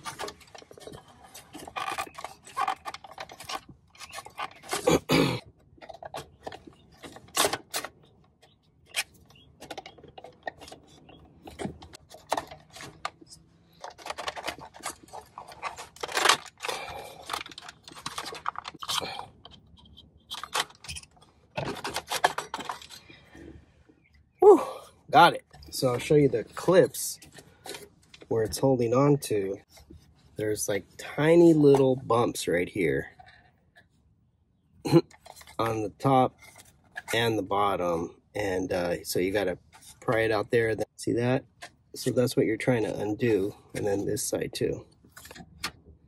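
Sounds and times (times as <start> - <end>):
plastic clicking and creaking: 0.0 - 4.9, 5.5 - 24.2.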